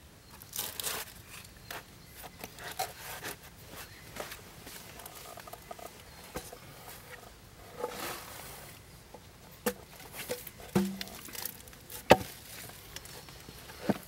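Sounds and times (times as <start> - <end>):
rustle: 0.0 - 14.0
wooden planks knocking: 10.7 - 11.4.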